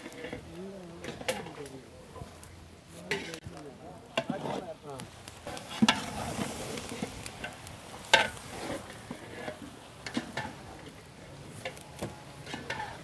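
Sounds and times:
frying sizzle: 0.0s - 13.0s
spatula scraping metal pot: 5.5s - 10.9s, 12.4s - 13.0s.

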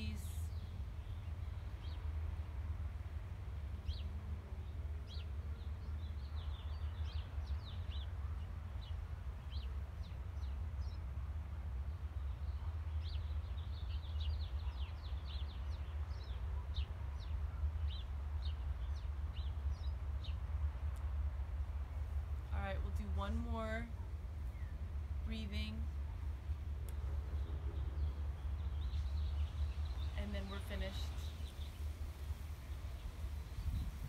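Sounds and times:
small birds chirping: 0.0s - 2.5s, 3.7s - 22.2s, 22.8s - 34.0s
low rumble: 17.8s - 34.0s.

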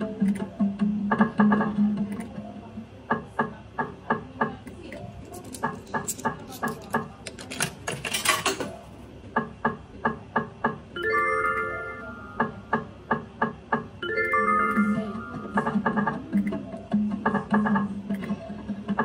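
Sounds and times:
slot machine electronic clicks: 11.0s - 12.8s, 14.0s - 16.6s.

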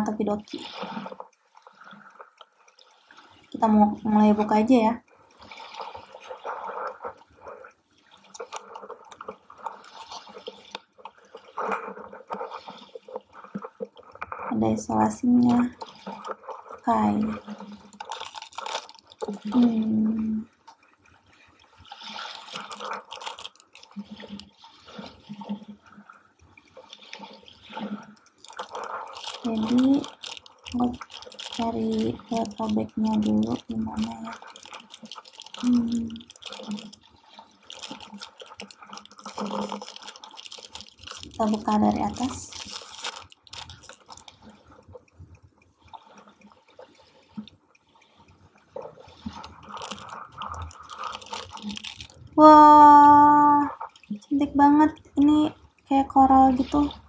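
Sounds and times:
foil wrapper crinkling: 15.5s - 19.8s, 22.5s - 24.6s, 28.4s - 44.3s, 49.2s - 52.4s.

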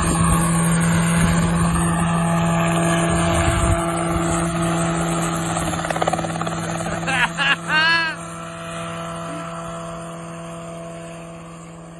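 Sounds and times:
wind rumble on microphone: 0.0s - 4.6s
helicopter hovering hum: 0.0s - 11.9s.

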